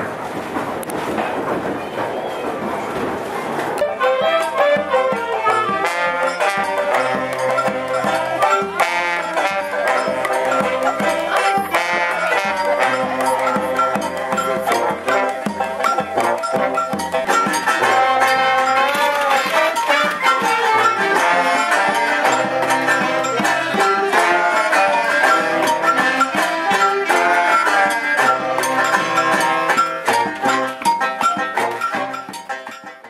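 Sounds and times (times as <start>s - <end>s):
banjo: 0.3s - 33.0s
drum beaten with sticks: 0.5s - 33.0s
brass band playing upbeat tune: 3.8s - 33.0s.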